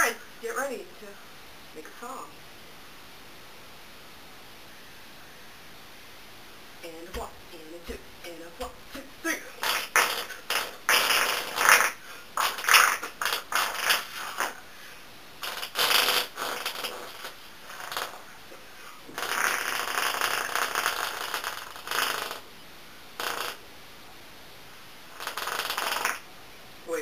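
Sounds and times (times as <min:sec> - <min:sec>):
armpit fart noises through straw: 0:08.9 - 0:14.6, 0:15.4 - 0:18.3, 0:19.1 - 0:22.4, 0:23.2 - 0:23.6, 0:25.2 - 0:26.2.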